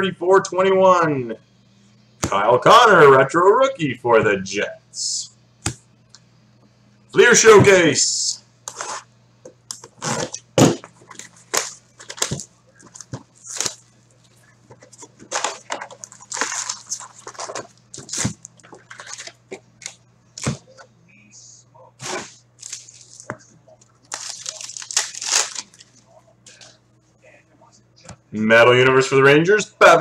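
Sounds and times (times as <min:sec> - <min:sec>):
foil packs crinkling: 0:09.9 - 0:13.9, 0:14.8 - 0:20.0, 0:22.0 - 0:23.4, 0:24.0 - 0:26.0
shrink wrap crackling and tearing: 0:11.1 - 0:13.8, 0:15.2 - 0:19.4, 0:22.0 - 0:23.3, 0:24.1 - 0:26.0.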